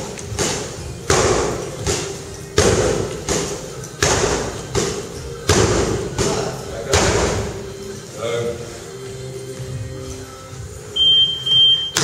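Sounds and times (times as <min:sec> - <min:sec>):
punches thudding on punching bags: 0:00.2 - 0:07.6.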